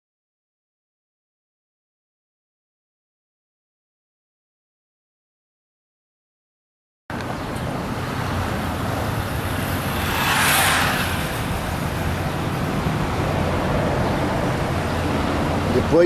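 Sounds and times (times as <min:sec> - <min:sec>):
low engine rumble: 0:07.1 - 0:16.0
vehicle whoosh: 0:07.3 - 0:16.0.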